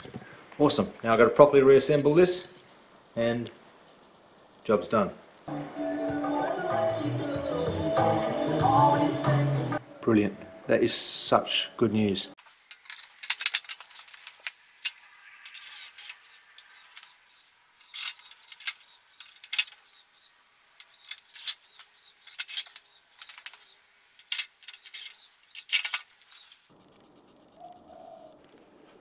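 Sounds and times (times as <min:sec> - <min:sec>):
sharp metallic clicks and clinks: 0:17.8 - 0:20.0, 0:20.8 - 0:26.6.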